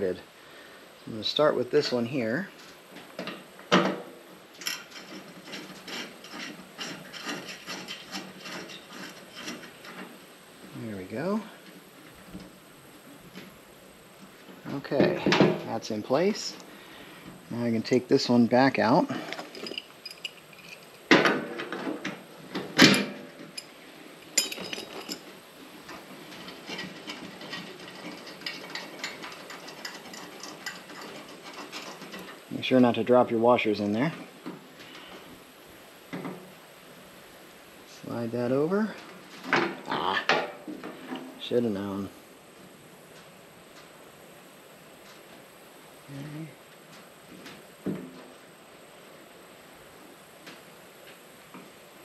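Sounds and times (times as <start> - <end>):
small metal clicks: 24.3 - 32.4.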